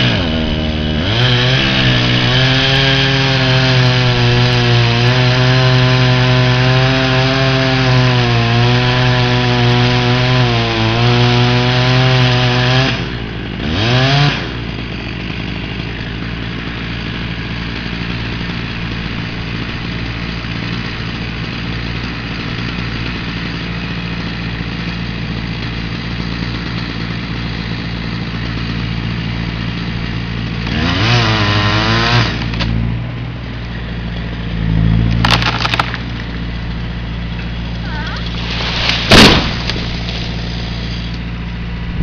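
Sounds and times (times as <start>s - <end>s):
chainsaw idling and revving: 0.0s - 42.0s.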